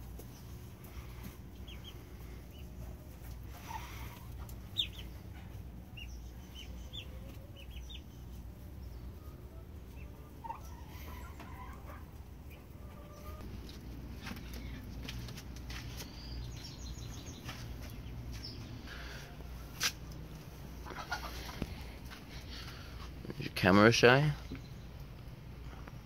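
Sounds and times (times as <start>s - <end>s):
low steady rumble: 0.0s - 26.0s
poultry chirping and clucking: 0.0s - 26.0s.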